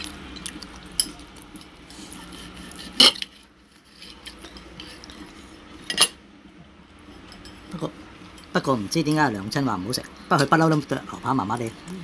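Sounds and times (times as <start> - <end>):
cutlery scraping ceramic plate: 2.2 - 5.0.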